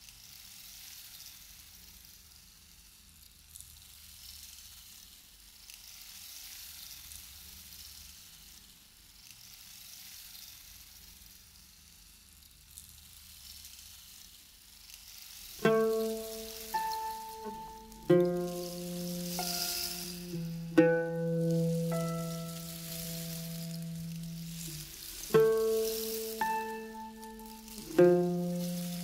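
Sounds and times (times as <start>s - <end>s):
faint steady hiss: 10.8s - 29.0s.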